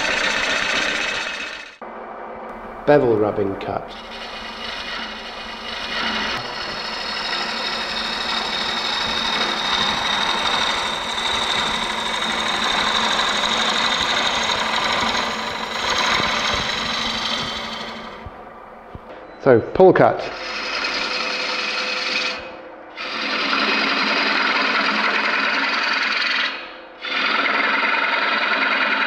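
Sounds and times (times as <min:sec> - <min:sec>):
hiss of wood shavings on lathe: 0:05.9 - 0:18.3.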